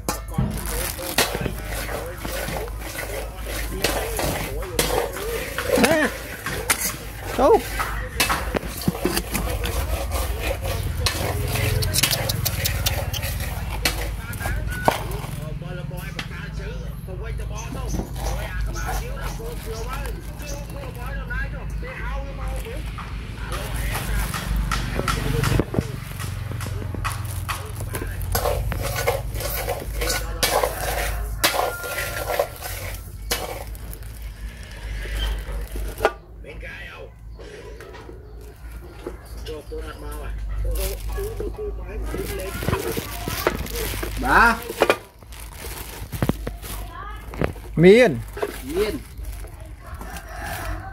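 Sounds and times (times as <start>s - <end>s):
plastic bag crinkling: 0.0s - 7.8s, 17.8s - 21.1s, 26.0s - 36.1s, 40.6s - 50.9s
metal ladle scraping pot: 0.0s - 15.5s, 17.6s - 21.0s, 23.5s - 36.2s, 42.1s - 49.4s.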